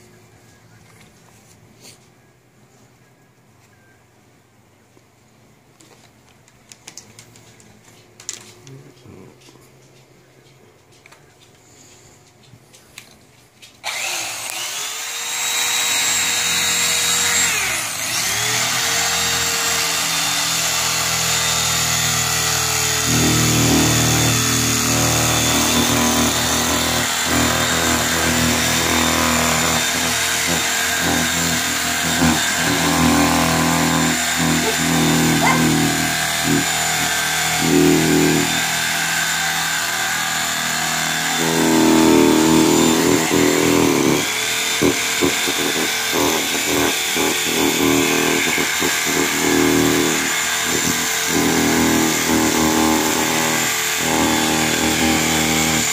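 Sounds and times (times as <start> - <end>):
electric cutter cutting foam: 13.8 - 55.9.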